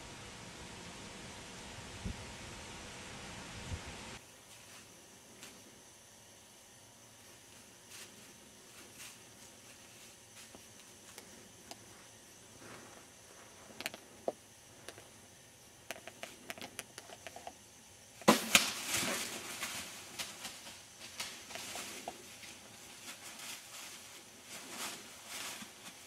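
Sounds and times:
leaves rustling: 6.9 - 15.3, 18.2 - 26.0
deer steps crunching dry leaves: 7.2 - 15.2, 18.2 - 26.0
sharp crack of bow shot: 18.2 - 18.9
deer crashing through dry leaves: 18.2 - 26.0.

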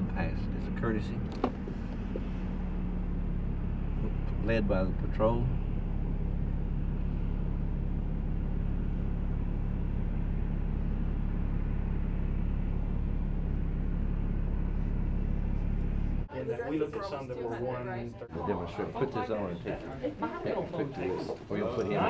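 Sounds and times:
vehicle engine rumbling: 0.0 - 22.0.

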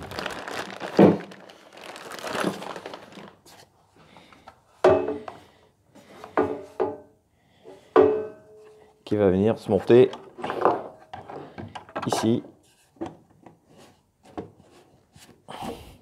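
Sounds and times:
plastic bag crinkling: 0.0 - 3.6.

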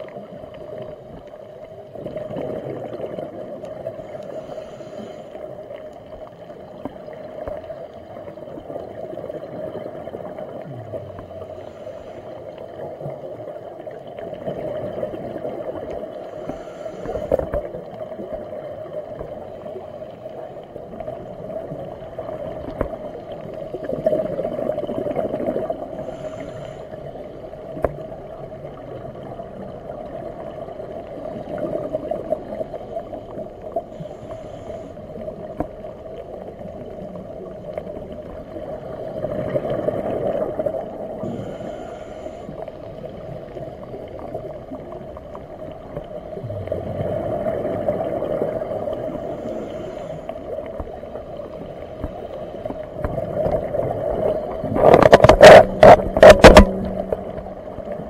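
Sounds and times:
exhaled bubbles gurgling: 0.0 - 58.0
steady underwater hum: 0.0 - 58.0
regulator inhalation hiss: 16.4 - 17.5, 26.0 - 26.9, 41.2 - 42.6.

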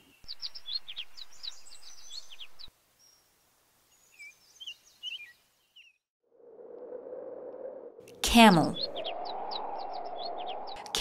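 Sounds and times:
small birds chirping: 0.0 - 6.0, 8.0 - 11.0.

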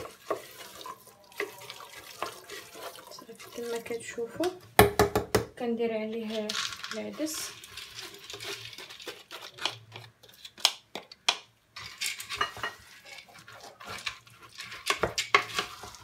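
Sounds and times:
lentils rattling into pot: 0.0 - 4.0, 6.1 - 10.6, 11.8 - 16.0
wooden spoon scraping sieve: 0.0 - 4.3, 6.1 - 10.6, 11.8 - 16.0.

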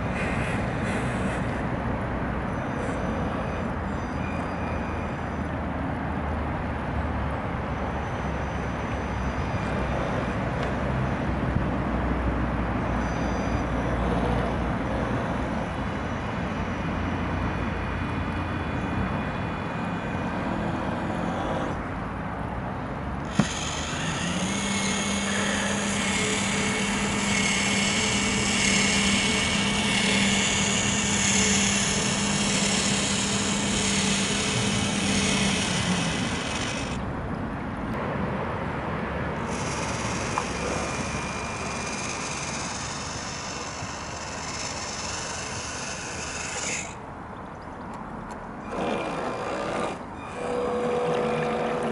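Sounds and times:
electric winch motor whining: 12.9 - 21.9, 23.2 - 37.0, 39.4 - 47.0, 48.6 - 51.9.

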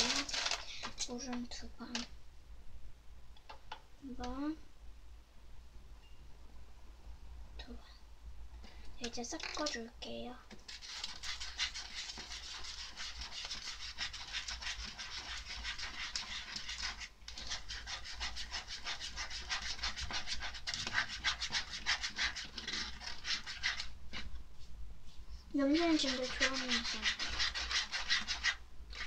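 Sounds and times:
plastic spoon scraping tray: 0.0 - 1.0, 9.0 - 9.8, 10.7 - 24.4, 25.6 - 29.0.

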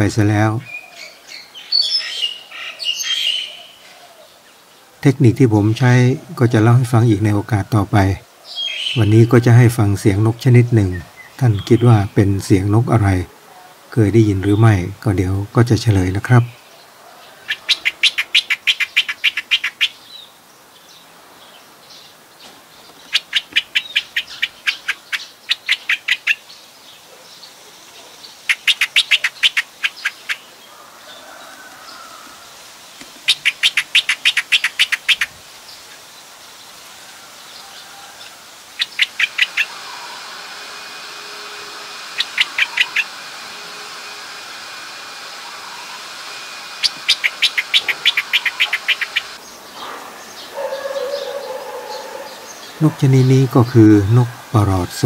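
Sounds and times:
bird calling sharp repeated notes: 8.5 - 12.2, 17.4 - 20.2, 22.9 - 26.5, 28.4 - 30.6, 33.0 - 35.4, 38.6 - 49.5
faint high whine: 36.8 - 49.5.

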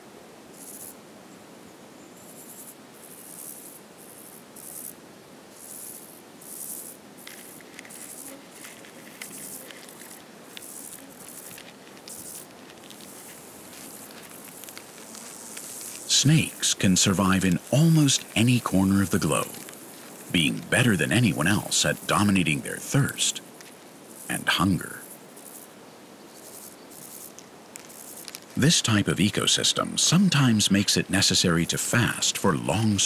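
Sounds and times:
soft outdoor ambience: 0.0 - 33.0
insects chirring: 0.5 - 1.0, 2.2 - 33.0
faint rustling ticks: 5.6 - 20.7, 23.4 - 24.3, 26.3 - 28.6.

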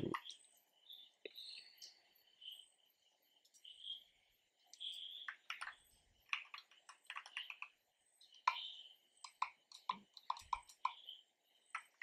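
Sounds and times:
computer keyboard clicking: 5.4 - 7.7, 9.2 - 11.0.

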